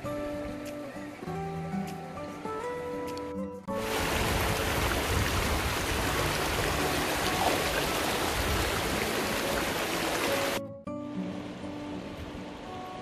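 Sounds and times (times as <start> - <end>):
river water rushing over stones: 3.7 - 10.6.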